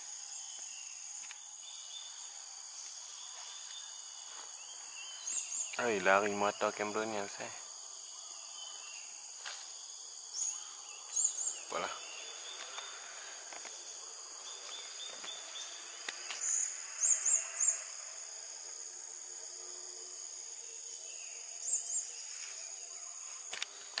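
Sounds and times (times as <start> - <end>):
high-pitched insect chorus: 0.0 - 24.0
bird chirping: 3.2 - 6.9, 10.3 - 18.1, 20.6 - 23.5.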